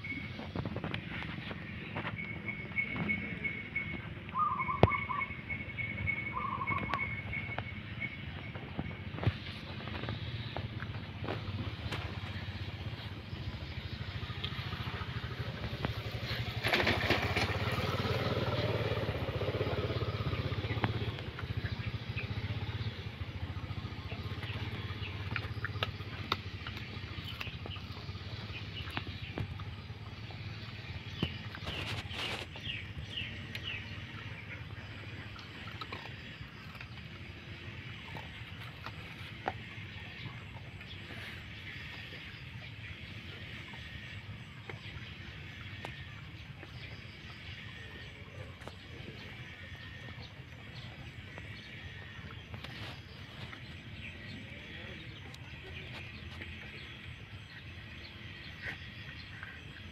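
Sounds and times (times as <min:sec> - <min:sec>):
low engine rumble: 0:00.0 - 0:59.9
passing engine: 0:00.0 - 0:59.9
dog chewing rice: 0:35.0 - 0:40.4.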